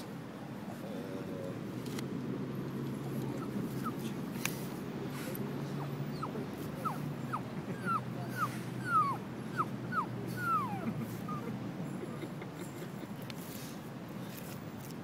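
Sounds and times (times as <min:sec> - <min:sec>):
dog whining: 0:03.0 - 0:04.1, 0:05.7 - 0:11.5.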